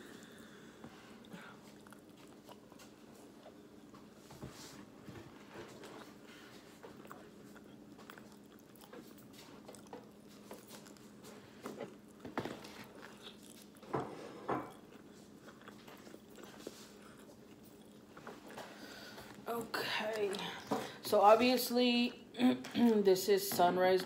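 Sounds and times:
faint steady hum: 0.0 - 24.0
biting and chewing: 1.2 - 4.1, 5.6 - 19.4.

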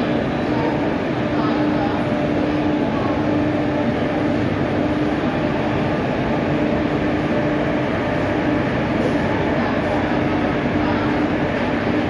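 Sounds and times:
electric locomotive humming: 0.0 - 12.0.

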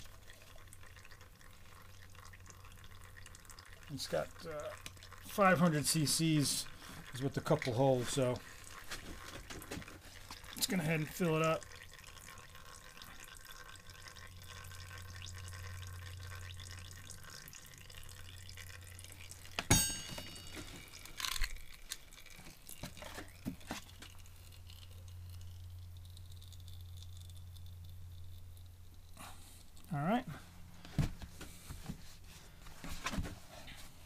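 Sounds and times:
oil trickling and dripping: 0.0 - 34.0
sharp clink with ring: 19.7 - 20.5.

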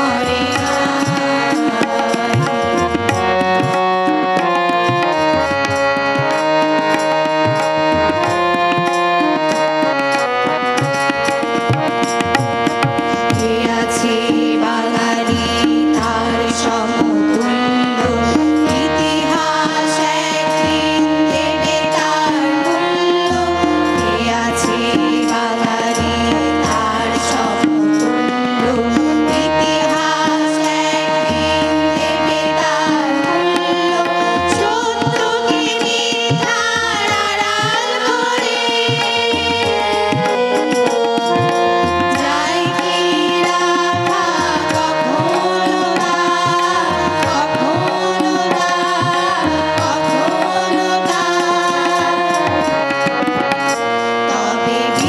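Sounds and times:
harmonium chords: 0.0 - 55.0
tabla drumming: 0.0 - 55.0
children's choir singing: 13.4 - 55.0.

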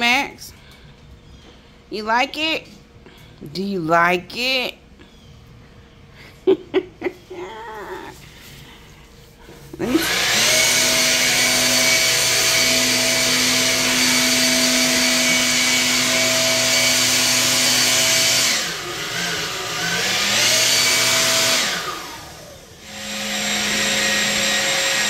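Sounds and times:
electric motor whining hum: 9.4 - 25.0.

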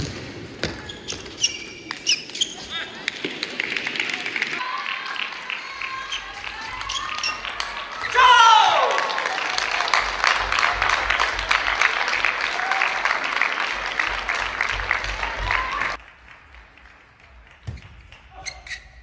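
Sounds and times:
crowd applauding: 3.0 - 18.3
people cheering: 3.5 - 16.0.

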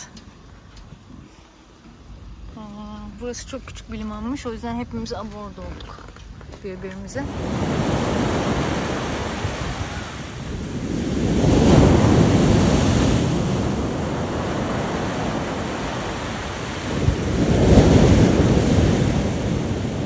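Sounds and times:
wind rumbling on microphone: 0.0 - 20.0
sea waves washing in: 7.0 - 20.0.

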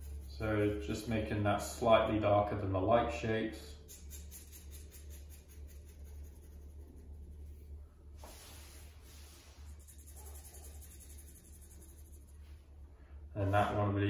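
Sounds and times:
pencil scratching on paper: 0.0 - 1.1, 3.8 - 12.6
low steady hum: 0.0 - 14.0.

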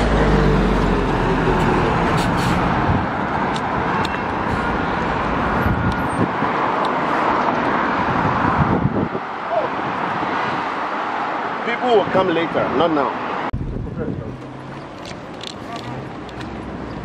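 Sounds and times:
vehicle engine hum: 0.0 - 9.0
traffic rumble: 0.0 - 17.0.

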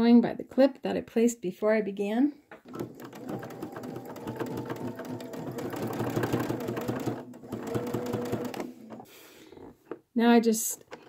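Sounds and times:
sewing machine stitching: 2.6 - 9.1.

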